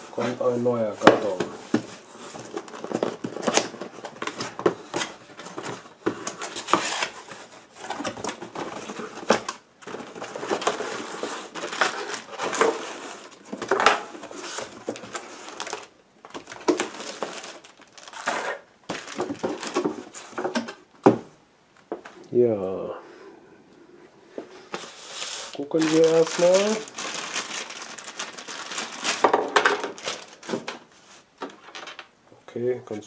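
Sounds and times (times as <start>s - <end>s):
cardboard flaps scraping and folding: 0.1s - 20.7s, 24.7s - 31.2s
plastic packaging rustling: 0.1s - 20.8s, 24.7s - 32.1s.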